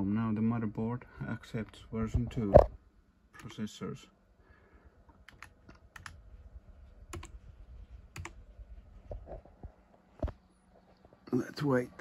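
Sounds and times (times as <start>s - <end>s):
faint low hum: 0.0s - 12.0s
computer keyboard key clicks: 5.3s - 6.2s, 7.1s - 7.3s, 8.2s - 8.4s.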